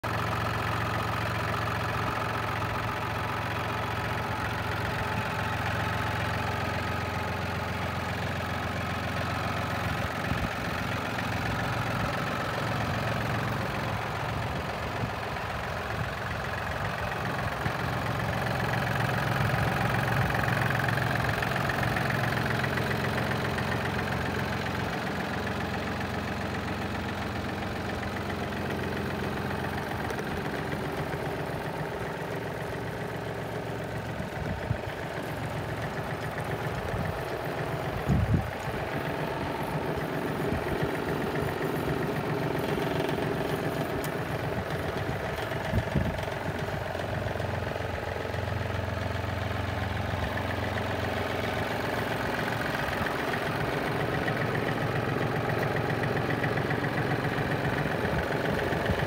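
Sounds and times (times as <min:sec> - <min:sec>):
tractor diesel engine idling: 0:00.0 - 0:59.0.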